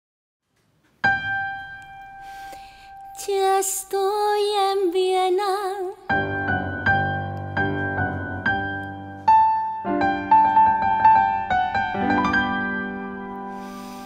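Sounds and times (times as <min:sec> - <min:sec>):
piano chords: 0:01.0 - 0:14.0
woman singing with vibrato: 0:03.1 - 0:06.2.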